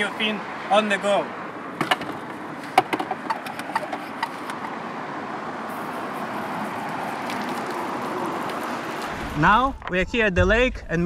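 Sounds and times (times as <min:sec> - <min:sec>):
hand pump clicks and knocks: 0:01.8 - 0:04.7.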